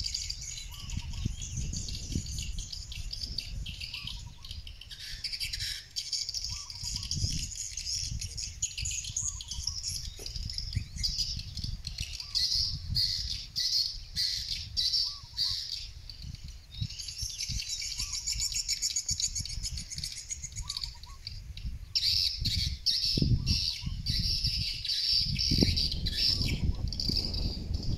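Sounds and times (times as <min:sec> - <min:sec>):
swiftlets twittering and chirping: 0:00.0 - 0:27.9
wind rumbling on microphone: 0:00.0 - 0:27.9.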